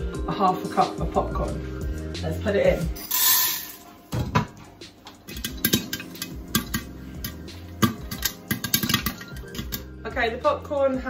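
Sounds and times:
popcorn kernels popping: 5.2 - 9.9.

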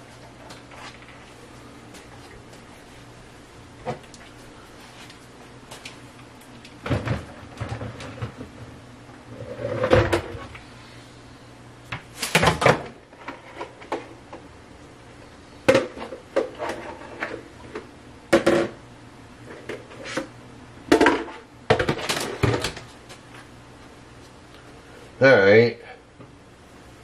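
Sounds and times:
low steady hum: 0.0 - 27.0
kitchen items knocking and rattling: 6.8 - 8.7, 9.5 - 10.5, 12.3 - 14.2, 20.9 - 22.9.

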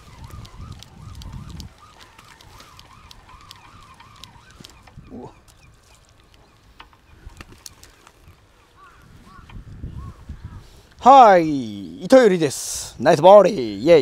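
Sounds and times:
small ticks: 0.0 - 9.6.

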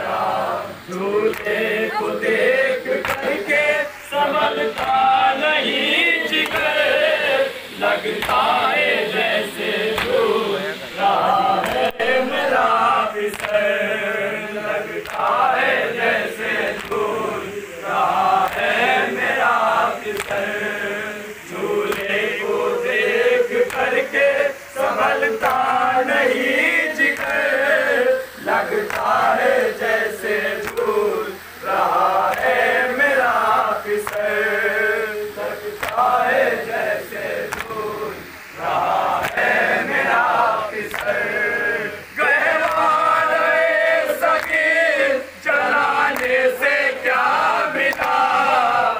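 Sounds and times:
men chanting in chorus: 0.0 - 48.9
person singing over a microphone: 0.0 - 48.9
hands slapping on chests: 1.3 - 1.6, 3.0 - 3.4, 4.7 - 5.0, 6.4 - 6.8, 8.2 - 8.5, 10.0 - 10.2, 11.6 - 12.0, 13.3 - 13.7, 15.0 - 15.4, 16.7 - 17.1, 18.4 - 18.8, 20.1 - 20.6, 21.9 - 22.2, 23.6 - 24.0, 27.1 - 27.5, 28.8 - 29.2, 30.6 - 30.9, 32.3 - 32.6, 34.0 - 34.3, 35.8 - 36.1, 37.5 - 37.8, 39.2 - 39.6, 40.9 - 41.2, 44.3 - 44.6, 46.1 - 46.4, 47.8 - 48.2.

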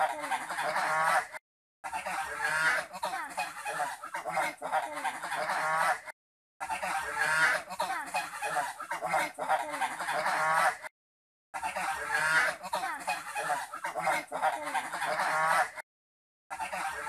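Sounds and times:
geese honking and cackling: 0.0 - 10.9, 11.6 - 15.8, 16.5 - 17.0.

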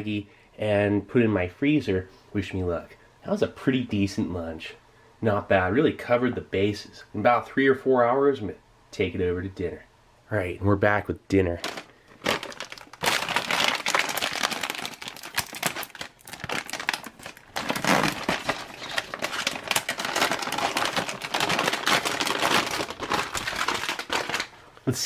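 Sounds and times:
plastic bag crinkling: 11.6 - 24.8.

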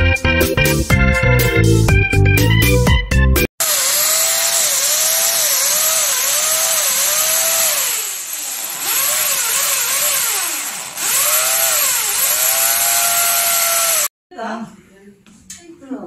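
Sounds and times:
electric drill boring into wall: 3.6 - 14.1.

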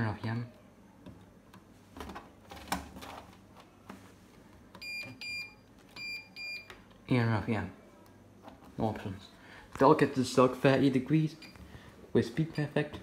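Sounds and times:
washing machine control panel beeping: 4.7 - 6.8.

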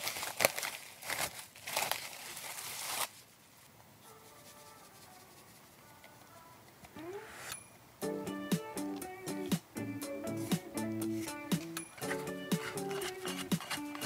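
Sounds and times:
plastic cling wrap crinkling: 0.0 - 3.7.

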